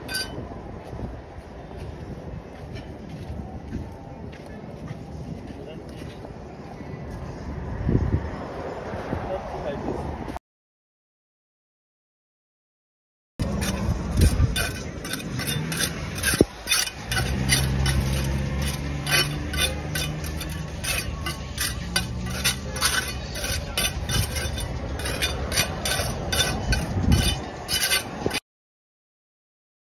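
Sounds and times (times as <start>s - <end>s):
trowel scraping on concrete: 0.0s - 0.4s, 13.4s - 28.4s.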